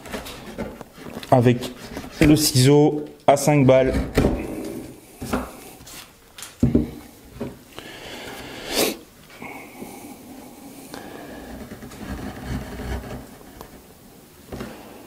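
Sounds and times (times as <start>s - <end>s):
chisel scraping: 0.0s - 2.6s, 11.4s - 13.9s.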